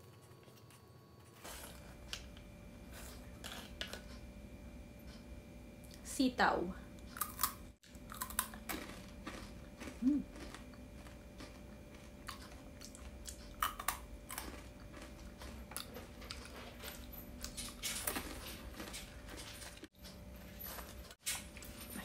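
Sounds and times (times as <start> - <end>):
crisps being bitten and chewed: 2.9 - 4.2, 7.1 - 19.9.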